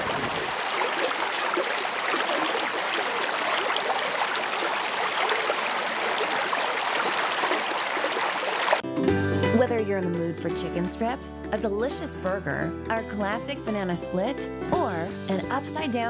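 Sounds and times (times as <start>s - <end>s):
creek rushing over rocks: 0.0s - 8.8s.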